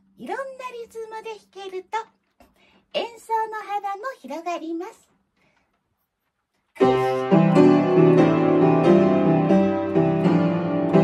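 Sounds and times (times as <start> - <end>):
upright piano playing: 6.8 - 11.0.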